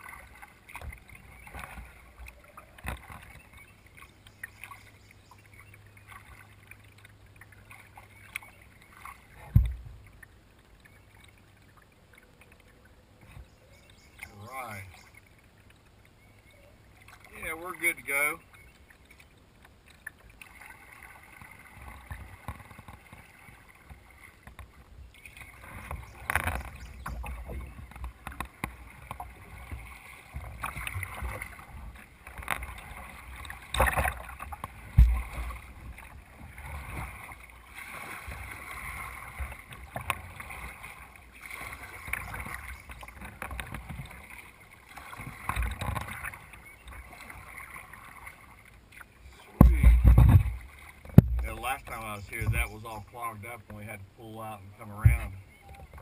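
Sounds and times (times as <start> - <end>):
paddle strokes splashing: 0.0 - 56.0
water washing against hull: 0.0 - 56.0
knocks and low thumps: 34.9 - 35.4, 49.5 - 51.8.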